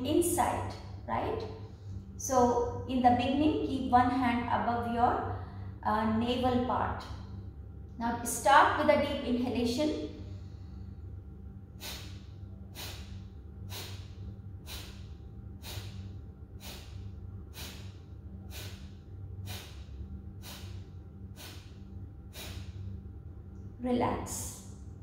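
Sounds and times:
woman exhaling forcefully through nose: 0:11.8 - 0:22.8.

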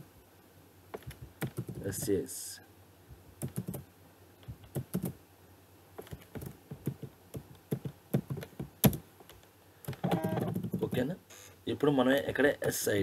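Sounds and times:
computer keyboard typing: 0:01.0 - 0:02.1, 0:03.4 - 0:03.8, 0:04.4 - 0:05.2, 0:06.0 - 0:11.0.

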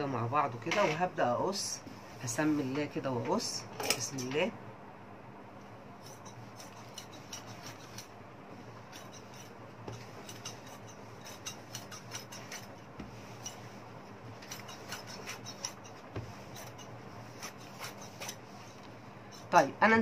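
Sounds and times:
shears snipping through fabric: 0:06.0 - 0:08.1, 0:08.9 - 0:13.7, 0:14.3 - 0:19.6.

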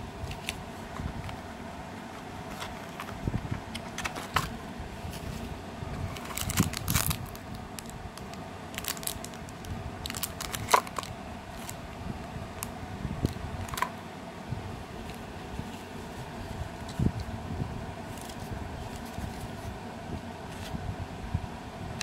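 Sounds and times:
plastic bags crinkling: 0:06.1 - 0:11.8.

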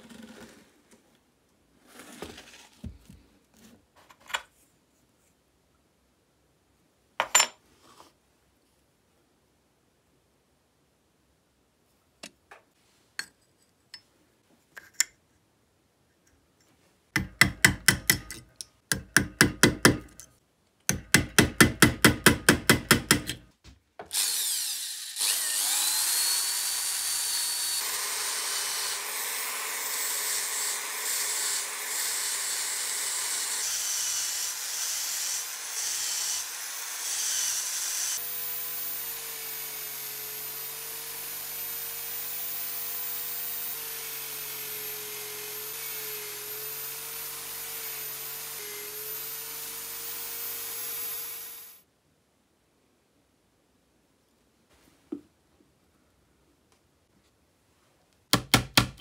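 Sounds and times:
power tool whining: 0:24.1 - 0:51.8.

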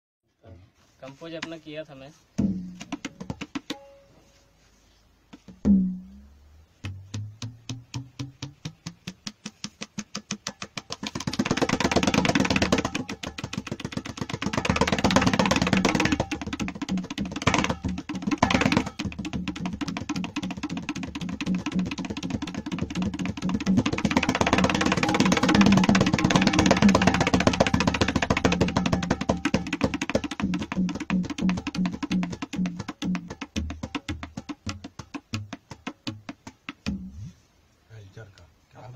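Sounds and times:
tabla and bayan drum roll: 0:10.1 - 0:37.4.

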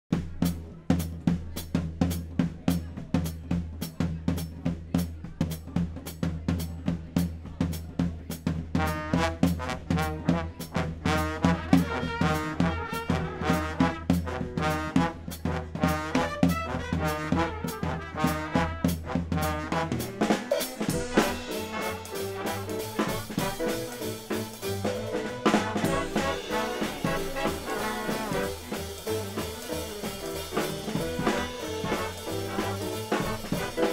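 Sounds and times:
big band playing swing music: 0:00.1 - 0:33.9
drum kit beat: 0:00.1 - 0:33.9
trombones and trumpets: 0:08.6 - 0:33.9.

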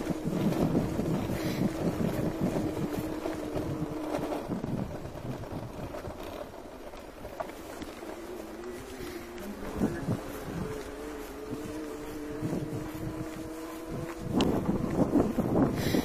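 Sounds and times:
tyre rumble over cobbles: 0:00.0 - 0:16.0
wind buffeting microphone: 0:00.0 - 0:16.0
steady hum: 0:07.8 - 0:16.0.

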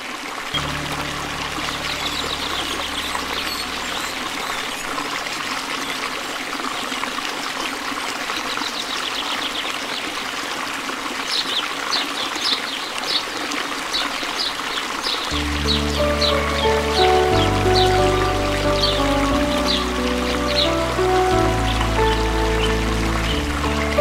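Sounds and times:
waterfall and rapids rushing: 0:00.0 - 0:24.0
low music drone: 0:00.6 - 0:05.9, 0:15.3 - 0:24.0.

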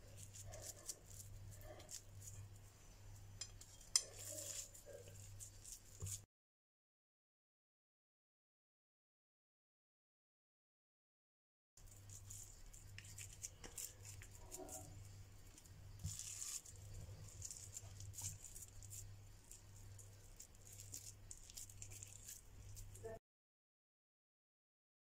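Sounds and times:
hands squishing minced meat: 0:00.0 - 0:06.2, 0:11.8 - 0:23.2.

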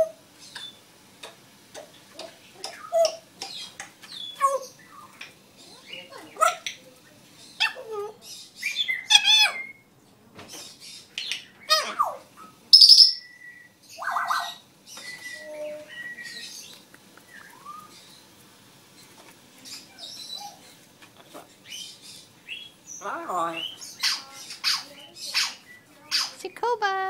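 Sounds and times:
parrot whistles and squawks: 0:07.6 - 0:09.9, 0:11.3 - 0:16.6, 0:17.3 - 0:18.0, 0:23.6 - 0:26.4.

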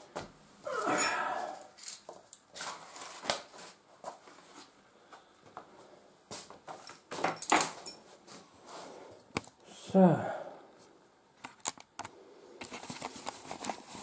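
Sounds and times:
paper rustling: 0:01.9 - 0:04.7, 0:12.7 - 0:14.0.

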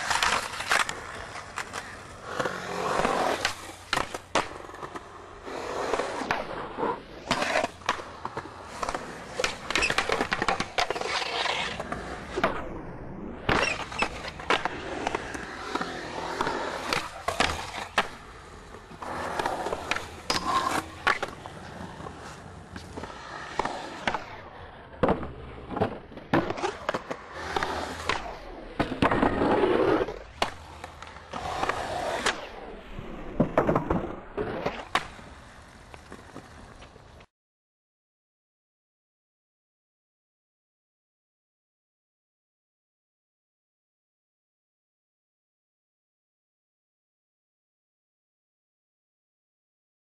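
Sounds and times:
skateboard wheels rolling on concrete: 0:00.0 - 0:37.3
skateboard clacks: 0:33.3 - 0:37.3.

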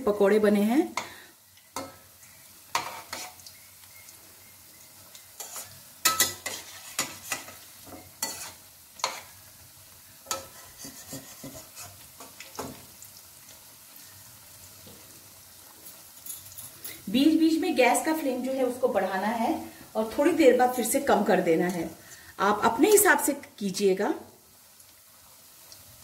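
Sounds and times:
food deep-frying in oil: 0:00.0 - 0:26.0
metal spatula clinking on pan: 0:05.4 - 0:09.3, 0:10.3 - 0:11.6, 0:15.9 - 0:17.0.

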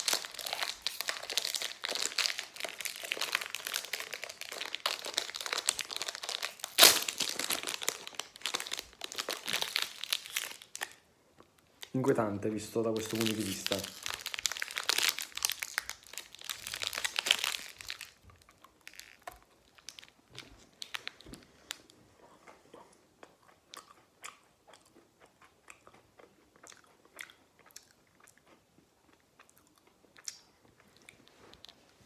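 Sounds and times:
plastic wrapper rustling: 0:00.0 - 0:11.0, 0:11.8 - 0:21.9.

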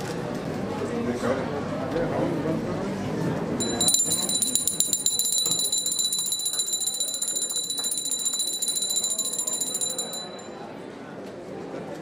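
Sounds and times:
small hand bell ringing rapidly: 0:03.6 - 0:10.6.

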